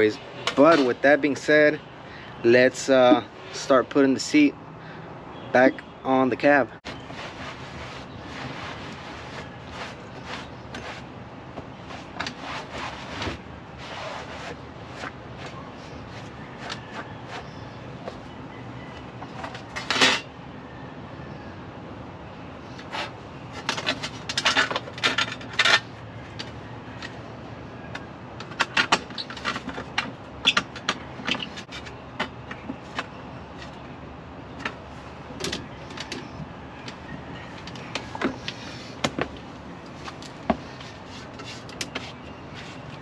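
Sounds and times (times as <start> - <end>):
metal tools clinking and rattling: 23.7 - 25.9.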